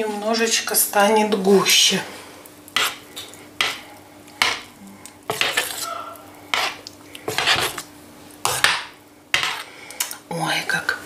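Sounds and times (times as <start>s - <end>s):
spoon stirring thick soup: 2.8s - 7.9s, 8.5s - 10.2s.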